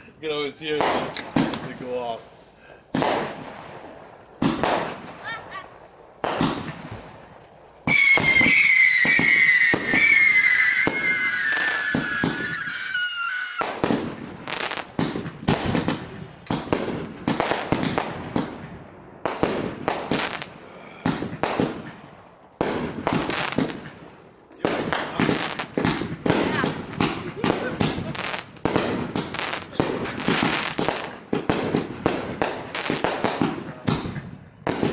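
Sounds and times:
firework pops and crackling: 0:00.7 - 0:02.2, 0:02.9 - 0:34.9
firework whistle falling in pitch: 0:07.9 - 0:13.7.

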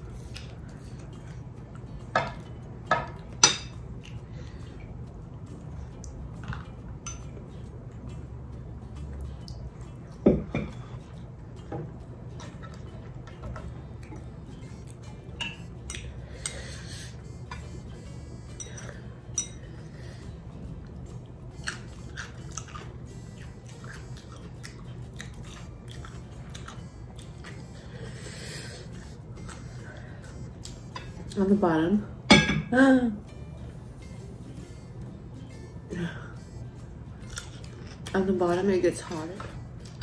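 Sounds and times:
person chewing food: 0:00.0 - 0:03.3, 0:08.9 - 0:31.4, 0:36.4 - 0:38.2
utensils clinking on dishes: 0:02.0 - 0:04.5, 0:06.4 - 0:07.5, 0:10.2 - 0:20.2, 0:32.3 - 0:33.0.

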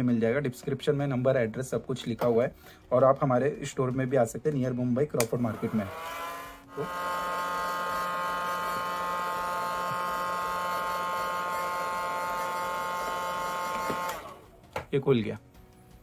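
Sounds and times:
heat gun whining: 0:05.5 - 0:14.4.

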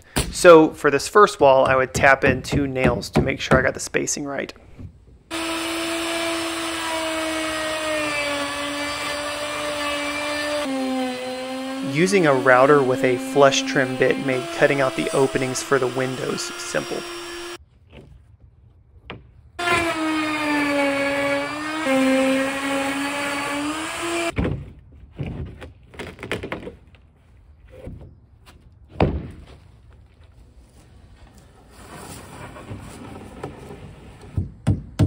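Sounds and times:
wooden knocks and thunks: 0:02.0 - 0:03.7, 0:24.4 - 0:26.9, 0:28.9 - 0:29.6, 0:34.3 - 0:35.0
router whining: 0:05.3 - 0:17.6, 0:19.6 - 0:24.4.

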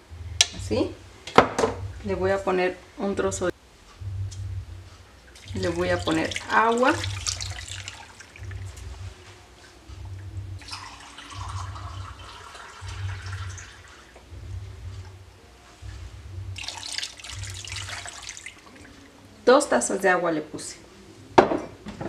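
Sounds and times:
pulsing low hum: 0:00.0 - 0:19.5
running water: 0:05.3 - 0:09.5, 0:10.6 - 0:14.3, 0:16.6 - 0:19.4.

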